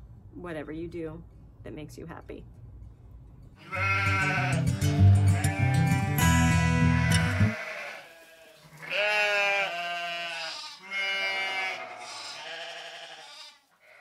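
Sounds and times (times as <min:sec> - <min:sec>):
sheep bleating: 0:03.6 - 0:14.0
closing music: 0:03.8 - 0:07.6.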